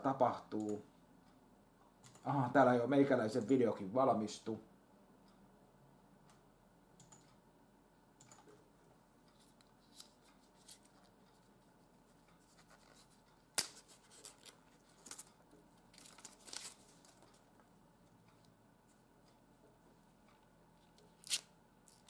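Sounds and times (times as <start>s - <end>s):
plastic film peeling and crinkling: 12.5s - 17.4s, 21.0s - 22.0s.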